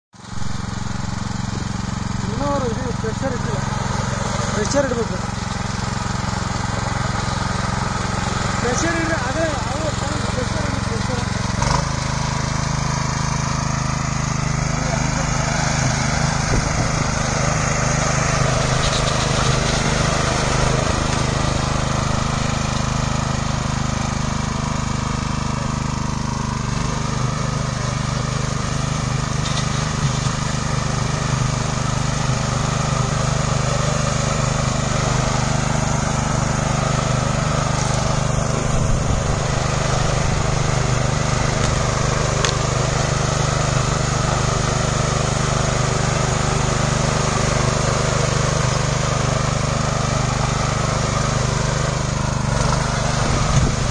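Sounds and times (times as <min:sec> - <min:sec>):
power weeder engine running: 0:00.2 - 0:53.9.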